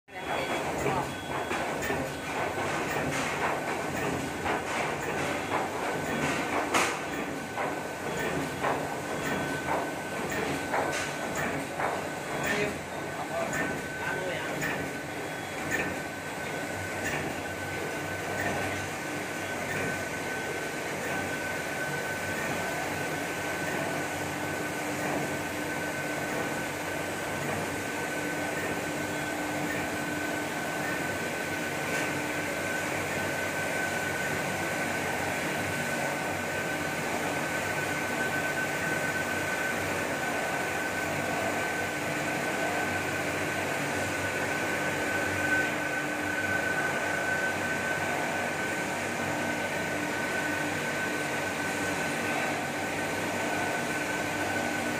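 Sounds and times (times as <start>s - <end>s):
machine clack: 0.2s - 23.0s, 28.5s - 30.0s.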